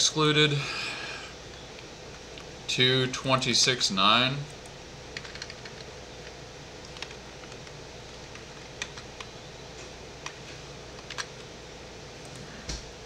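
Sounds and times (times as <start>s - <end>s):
faint hum: 0.0s - 13.0s
keyboard and mouse clicks: 5.2s - 5.9s.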